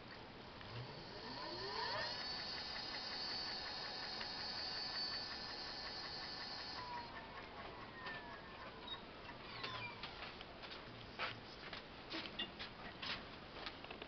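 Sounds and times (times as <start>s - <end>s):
electric motor whining: 0.6s - 7.2s.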